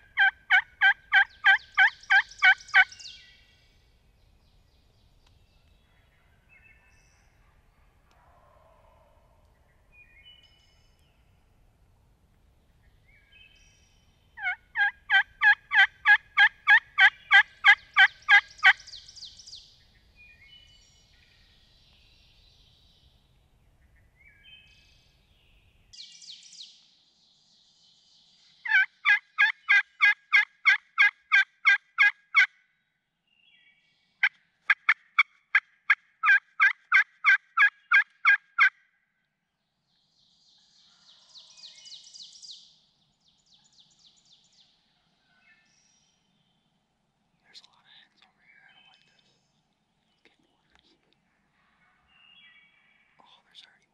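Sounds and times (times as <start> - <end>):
turkey call yelps: 0.1 - 2.9, 14.4 - 18.8, 28.7 - 32.5, 36.2 - 38.7.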